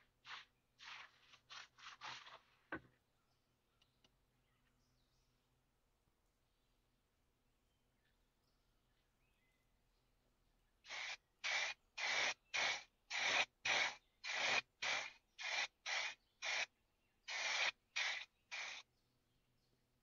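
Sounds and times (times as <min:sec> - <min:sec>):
spray can hissing: 0:00.2 - 0:02.4, 0:10.9 - 0:16.7, 0:17.3 - 0:18.8.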